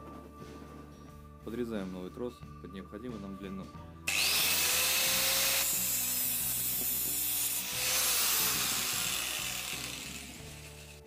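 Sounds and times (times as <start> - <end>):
angle grinder whining: 4.1 - 11.0
disc grinding through steel wire: 4.1 - 11.0.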